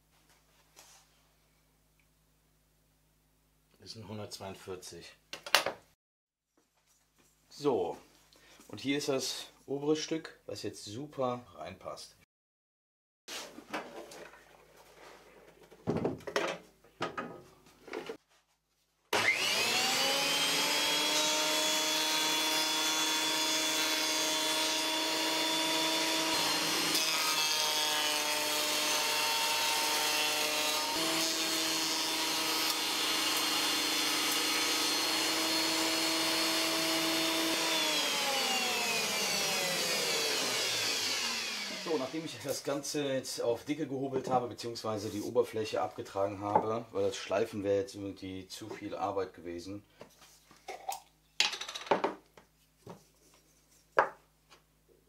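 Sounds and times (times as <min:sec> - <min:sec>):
thickness planer whining: 0:19.2 - 0:42.5.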